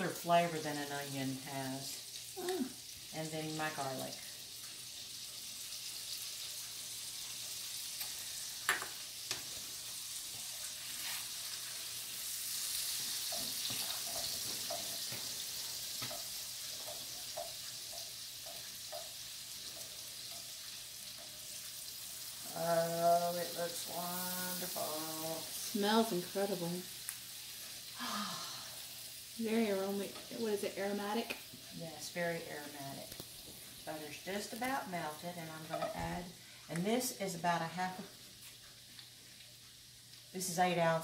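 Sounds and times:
food sizzling in a skillet: 0.0s - 41.0s.

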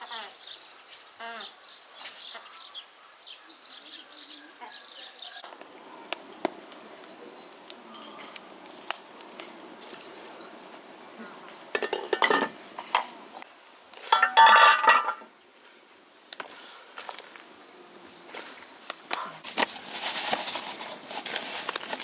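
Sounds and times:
metal pot lid clattering: 11.7s - 13.1s, 14.1s - 15.3s.

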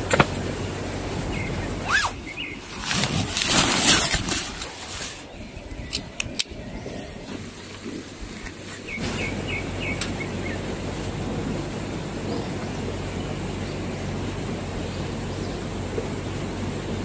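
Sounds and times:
birds chirping: 0.0s - 17.0s
tent fabric rustling: 1.8s - 5.4s, 7.0s - 9.9s
tent pole sections clicking: 2.7s - 5.0s, 5.8s - 6.6s.

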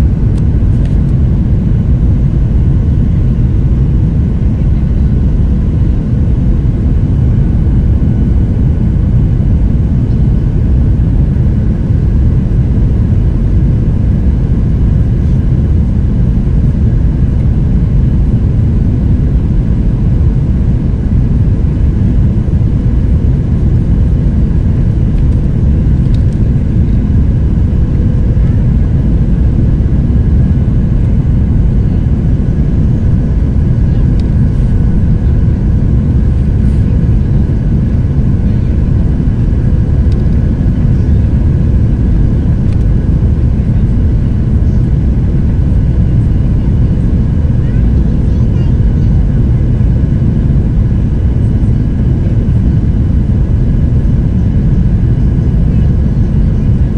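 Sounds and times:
faint steady hum: 0.0s - 56.9s
jet engines and airflow rushing: 0.0s - 56.9s.

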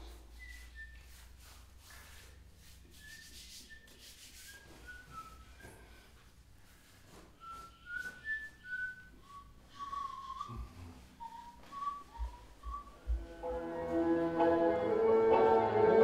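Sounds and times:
person whistling a tune: 0.3s - 1.4s, 3.0s - 6.1s, 7.4s - 13.9s
music: 12.4s - 16.0s.

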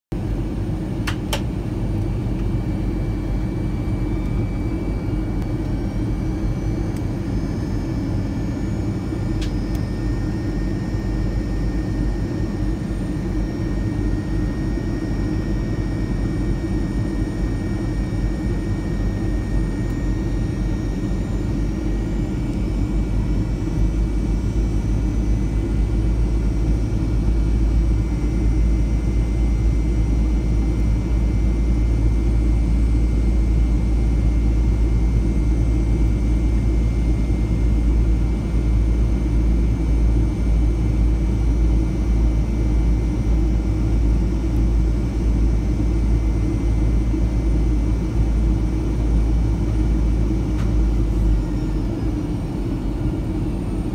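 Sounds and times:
jet cabin engine rumble: 0.1s - 53.9s
faint high whine: 1.0s - 53.9s.

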